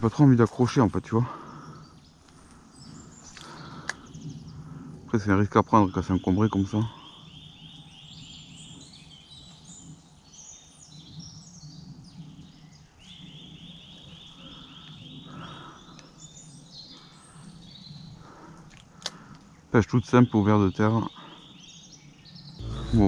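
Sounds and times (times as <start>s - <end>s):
faint low hum: 22.6s - 23.0s
songbird fast note run: 22.6s - 23.0s.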